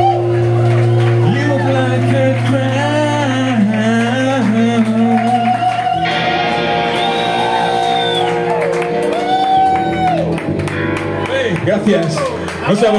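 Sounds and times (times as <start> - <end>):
bass guitar: 0.0 - 12.9
electric guitars: 0.0 - 12.9
man singing: 1.2 - 5.8.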